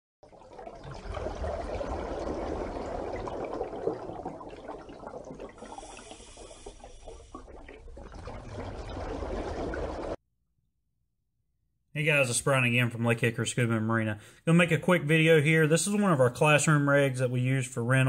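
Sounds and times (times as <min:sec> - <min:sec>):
running water rushing: 0:00.3 - 0:10.2.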